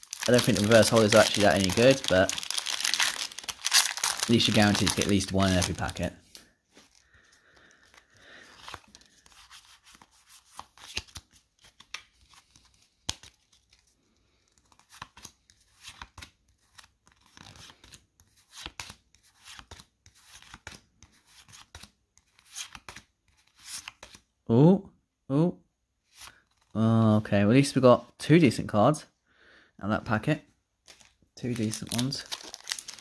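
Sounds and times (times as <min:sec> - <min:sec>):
cards and foil wrapper crinkling: 0:00.0 - 0:18.0, 0:30.9 - 0:33.0.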